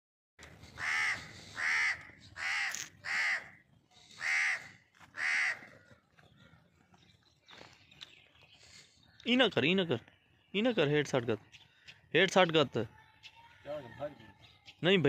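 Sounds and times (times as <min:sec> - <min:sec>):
crow cawing: 0:00.8 - 0:06.1.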